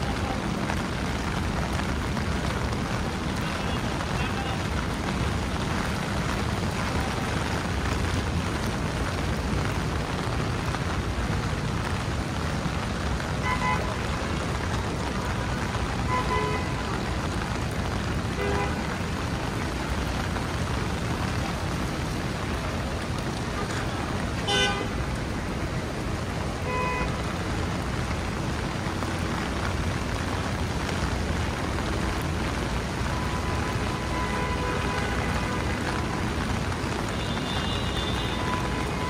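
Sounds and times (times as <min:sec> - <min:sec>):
rain hissing: 0:00.0 - 0:39.0
street traffic: 0:00.0 - 0:39.0
car horn toots: 0:24.5 - 0:25.0, 0:26.6 - 0:27.1.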